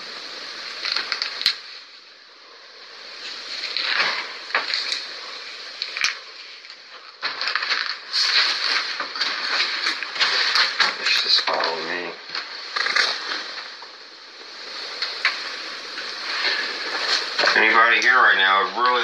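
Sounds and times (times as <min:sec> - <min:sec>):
recorder hiss: 0:00.0 - 0:19.0
footsteps scuffing and crunching: 0:07.2 - 0:13.5.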